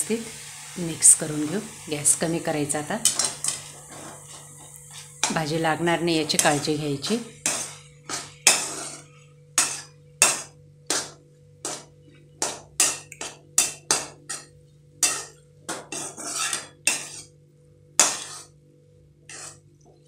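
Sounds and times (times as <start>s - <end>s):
metal spatula clanking on pan: 7.4s - 9.0s, 9.6s - 17.3s, 18.0s - 18.5s.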